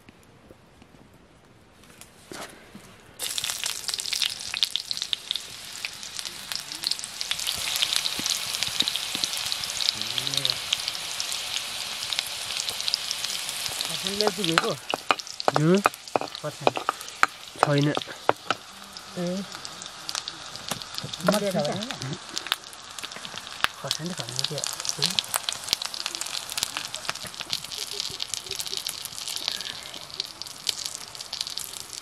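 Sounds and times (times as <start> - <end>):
food sizzling in hot oil: 3.2 - 32.0.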